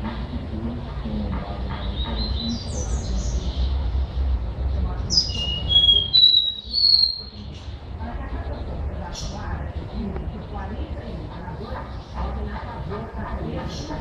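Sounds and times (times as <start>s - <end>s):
steady low rumble: 0.0s - 14.0s
bird whistling song: 1.8s - 3.7s, 5.1s - 7.4s.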